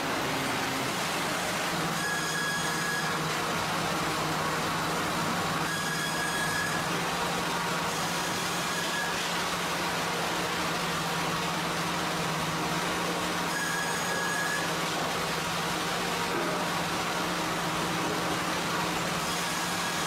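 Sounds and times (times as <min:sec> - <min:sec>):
sawmill machinery hum: 0:00.0 - 0:20.0
high saw whines: 0:01.7 - 0:03.3, 0:05.6 - 0:07.0, 0:07.8 - 0:09.4, 0:13.4 - 0:14.8.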